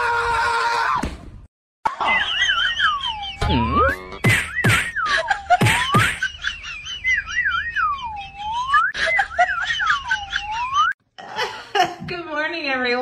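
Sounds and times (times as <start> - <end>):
whistled tune with swooping notes: 2.6 - 6.3, 6.9 - 9.0
wavering trill: 2.6 - 9.0.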